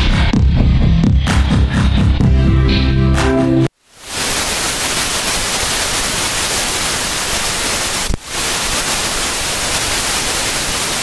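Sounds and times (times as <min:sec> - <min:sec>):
heavy rain and tyre spray hiss: 0:03.8 - 0:11.0.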